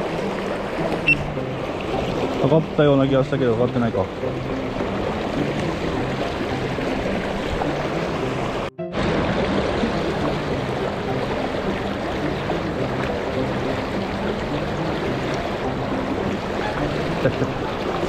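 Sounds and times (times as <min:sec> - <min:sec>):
river rushing over rocks: 0:04.6 - 0:18.0.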